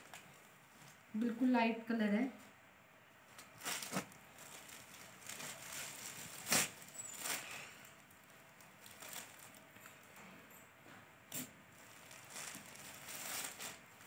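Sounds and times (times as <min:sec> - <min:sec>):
fabric rustling: 0:03.2 - 0:10.2, 0:11.7 - 0:14.0.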